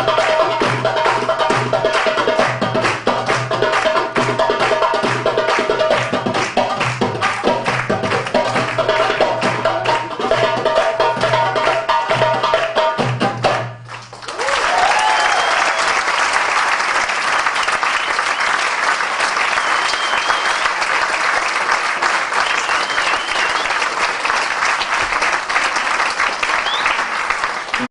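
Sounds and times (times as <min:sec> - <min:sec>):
goblet drums playing fast rhythm: 0:00.0 - 0:13.8
audience applause: 0:00.6 - 0:10.1, 0:13.9 - 0:27.9
whistles from audience: 0:14.5 - 0:16.0, 0:17.6 - 0:21.0, 0:22.3 - 0:24.1, 0:26.5 - 0:27.2.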